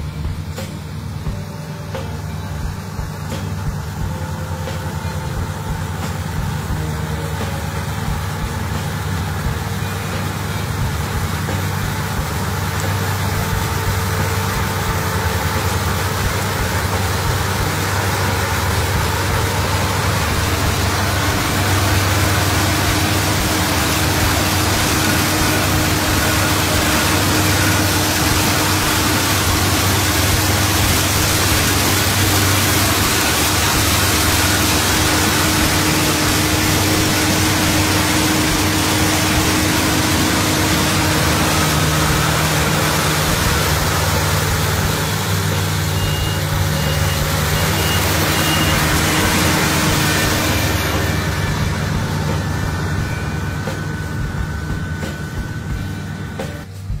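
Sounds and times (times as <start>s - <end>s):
combine harvester droning: 0.0s - 57.0s
short high beeps: 45.8s - 50.8s.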